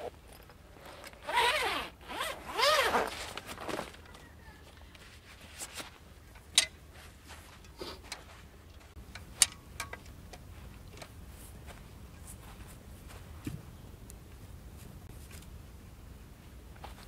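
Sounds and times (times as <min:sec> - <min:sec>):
camping gear clicks and knocks: 0:00.0 - 0:11.2.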